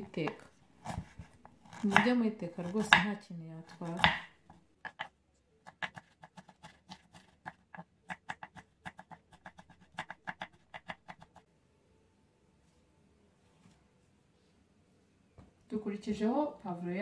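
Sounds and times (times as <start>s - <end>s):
knife chopping on wooden board: 0.2s - 3.2s, 3.8s - 5.1s, 5.7s - 11.4s.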